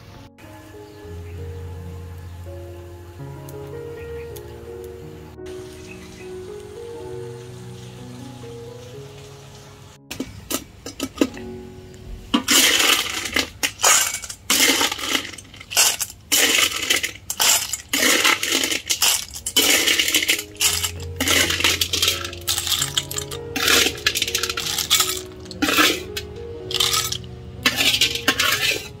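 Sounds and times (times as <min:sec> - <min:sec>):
snail shells clattering on metal: 0:10.1 - 0:11.4, 0:12.4 - 0:29.0
metal spatula scraping wok: 0:12.4 - 0:29.0.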